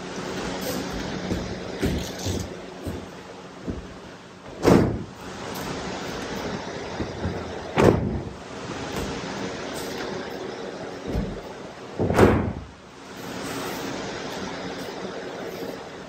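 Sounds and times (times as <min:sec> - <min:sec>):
bodies landing on mats: 0:01.0 - 0:05.2, 0:06.9 - 0:09.3, 0:12.0 - 0:12.7.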